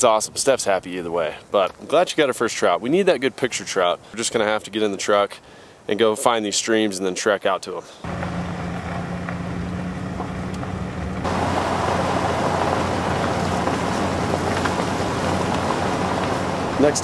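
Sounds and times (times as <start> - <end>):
wind: 0.0 - 17.0
truck engine hum: 8.0 - 17.0
tyres rushing on gravel: 8.1 - 17.0.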